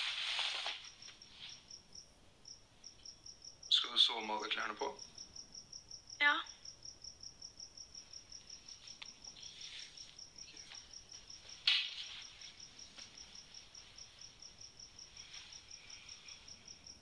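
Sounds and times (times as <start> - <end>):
bedding and clothes rustling: 0.0 - 1.8, 8.1 - 17.0.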